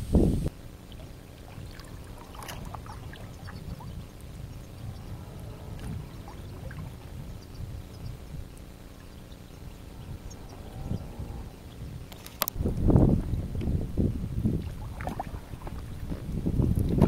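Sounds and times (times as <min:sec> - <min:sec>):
paddle splashing water: 0:00.8 - 0:07.8, 0:14.6 - 0:17.0
water dripping: 0:00.8 - 0:10.6.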